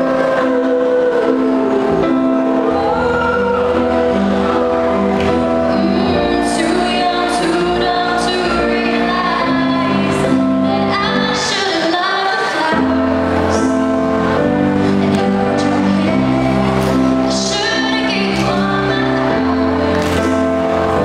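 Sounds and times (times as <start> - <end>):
instrumental backing music: 0.0 - 21.0
girl singing into microphone: 5.6 - 13.8, 15.1 - 21.0.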